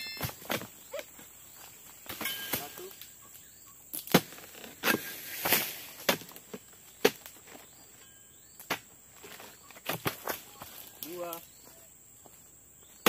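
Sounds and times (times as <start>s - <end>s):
chisel chopping palm stalks: 4.0s - 7.4s.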